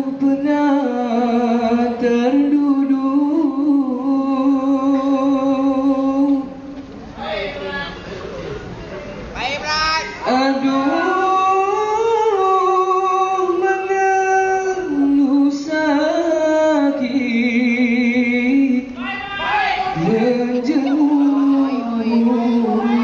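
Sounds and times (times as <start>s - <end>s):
person singing with vibrato: 0.0s - 6.8s, 10.0s - 19.2s, 19.8s - 23.0s.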